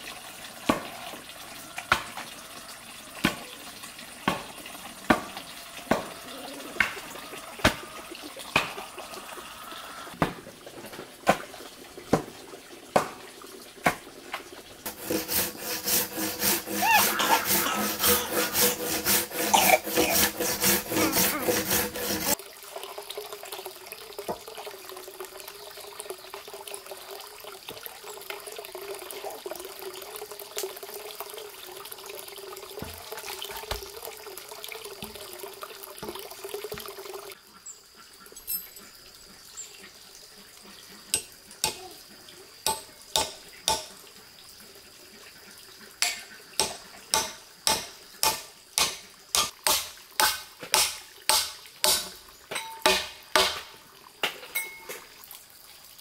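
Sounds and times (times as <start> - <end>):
water running: 0.0 - 37.4.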